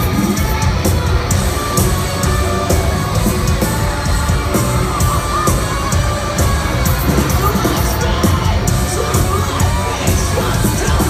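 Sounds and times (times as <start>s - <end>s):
crowd yelling and singing: 0.0s - 11.0s
live rock band playing loudly: 0.0s - 11.0s.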